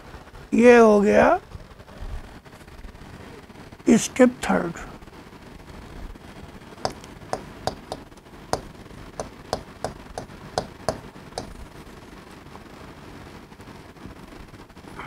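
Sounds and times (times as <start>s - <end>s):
chalk tapping on a chalkboard: 6.9s - 8.0s, 8.6s - 11.6s.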